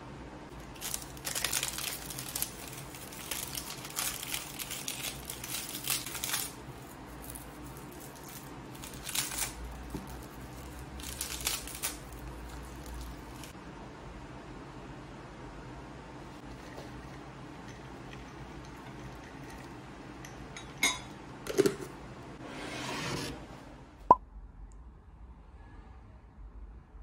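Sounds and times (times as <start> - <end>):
crinkling and rustling handling: 0.6 - 13.6.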